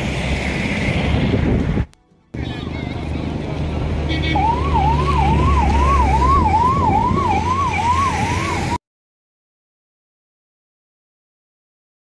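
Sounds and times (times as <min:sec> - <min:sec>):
road traffic rumble: 0:00.0 - 0:08.8
emergency siren wailing: 0:04.0 - 0:08.8.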